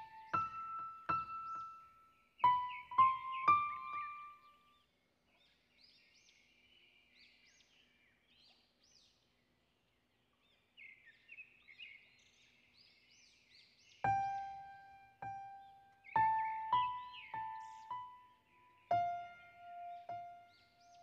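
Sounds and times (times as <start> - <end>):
soft piano notes: 0.0 - 4.6, 14.0 - 21.0
small birds chirping: 0.0 - 21.0.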